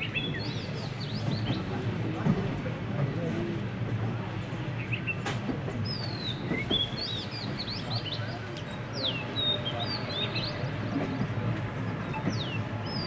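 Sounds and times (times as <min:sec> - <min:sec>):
birds chirping: 0:00.0 - 0:02.0, 0:04.7 - 0:13.0
train rumbling: 0:00.0 - 0:13.0.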